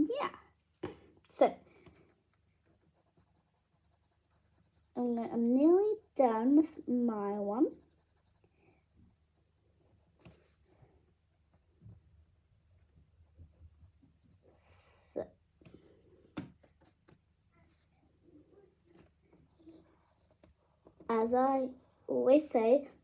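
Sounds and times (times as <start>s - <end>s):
pencil scratching on paper: 1.7s - 15.0s, 18.9s - 21.3s.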